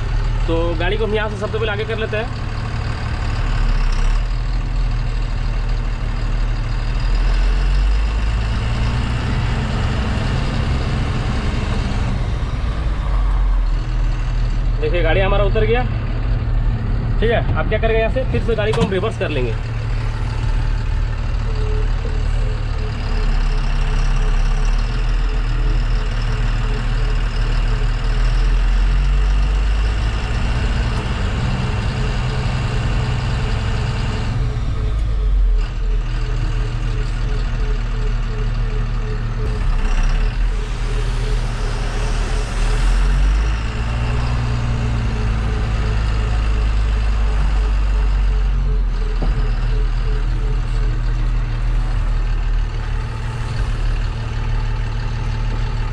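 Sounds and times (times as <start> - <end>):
diesel truck engine running: 0.0 - 55.9
rapid reversing beeps: 18.5 - 28.5, 34.8 - 55.9.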